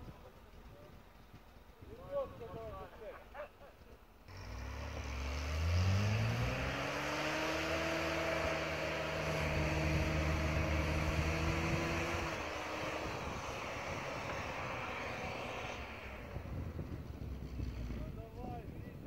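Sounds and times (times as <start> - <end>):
engine revving: 4.3 - 18.4.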